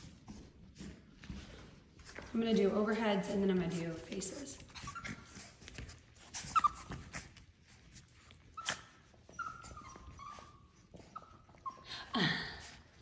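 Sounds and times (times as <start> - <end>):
puppies whining and yipping: 4.5 - 13.0.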